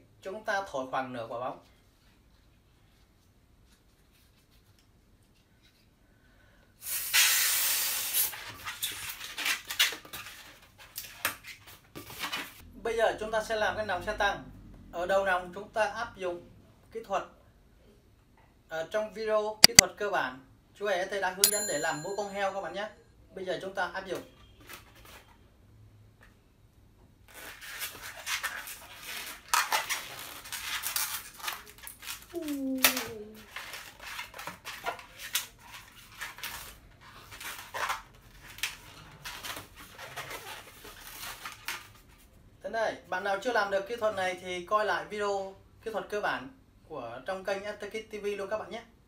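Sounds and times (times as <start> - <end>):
air hissing into balloon: 6.8 - 8.4
rubbery balloon squeaks: 32.3 - 34.0.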